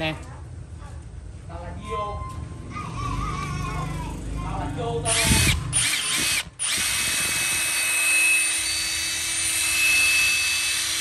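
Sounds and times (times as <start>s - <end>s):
impact driver whirring: 5.0s - 11.0s.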